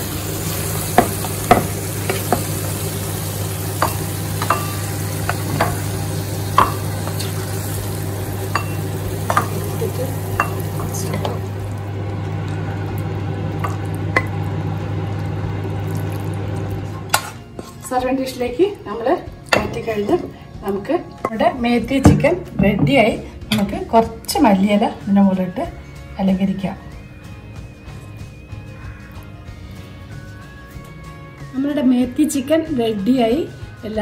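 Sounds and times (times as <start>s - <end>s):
soft sizzle: 0.0s - 18.8s
wooden spoon scraping a pan: 17.1s - 18.0s.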